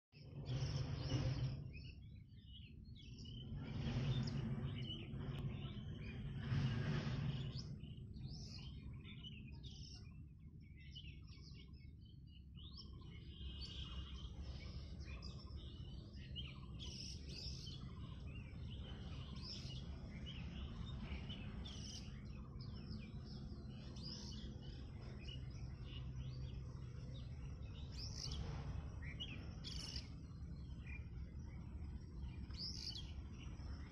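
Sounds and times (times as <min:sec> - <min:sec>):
small birds chirping: 0:00.1 - 0:33.9
rushes of noise: 0:03.1 - 0:08.9, 0:13.8 - 0:33.9.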